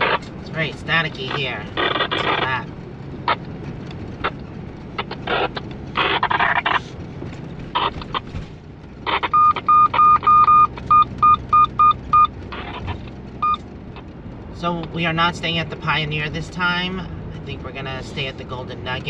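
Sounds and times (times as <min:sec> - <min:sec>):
radio static bursts: 0:00.0 - 0:03.5, 0:04.2 - 0:07.0, 0:07.7 - 0:08.3, 0:09.0 - 0:10.5, 0:12.5 - 0:13.1
vehicle engine and road hum: 0:00.0 - 0:19.0
short electronic beeps: 0:09.1 - 0:12.4.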